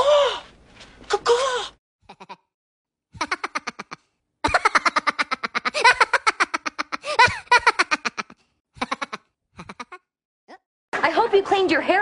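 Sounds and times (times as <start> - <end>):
person laughing: 2.1 - 2.5, 3.2 - 10.1.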